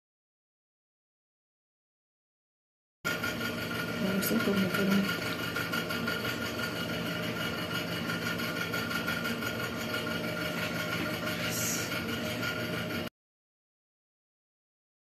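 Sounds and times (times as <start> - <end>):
machine hum with high whine: 3.1 - 13.1.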